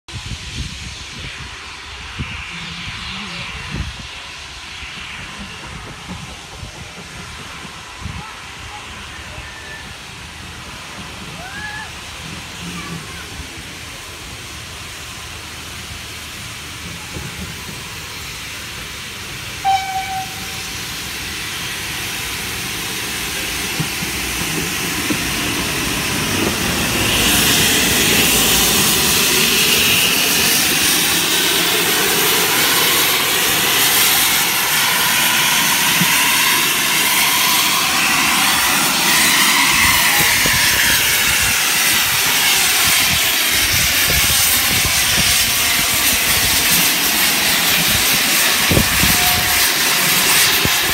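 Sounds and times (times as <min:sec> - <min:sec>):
steam locomotive hissing: 0:00.1 - 0:50.9
steam whistle note: 0:19.6 - 0:20.8, 0:48.6 - 0:50.7.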